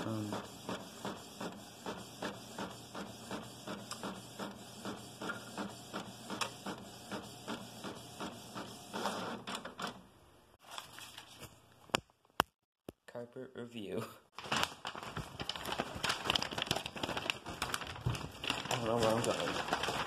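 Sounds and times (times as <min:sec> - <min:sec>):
inkjet printer printing: 0:00.0 - 0:09.9.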